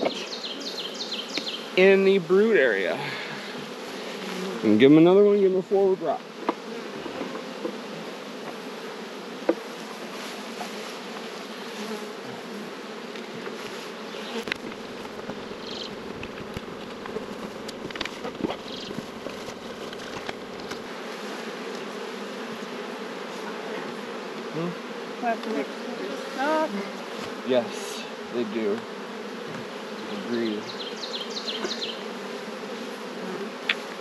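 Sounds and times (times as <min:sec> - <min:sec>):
bees buzzing: 0:00.0 - 0:34.0
wooden hive boxes clicking: 0:13.1 - 0:20.9, 0:21.5 - 0:21.9, 0:33.6 - 0:34.0.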